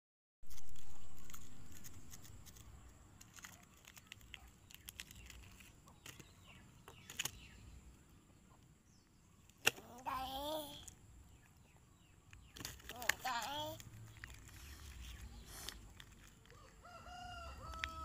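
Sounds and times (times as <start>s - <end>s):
sachet crinkling: 0.5s - 6.3s, 12.5s - 16.9s.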